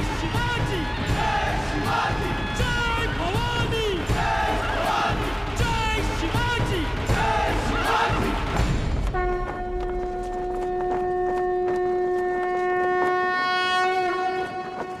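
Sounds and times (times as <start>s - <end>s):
crowd shouting: 0.0s - 8.6s
music: 0.0s - 15.0s
horn long steady note: 7.2s - 15.0s.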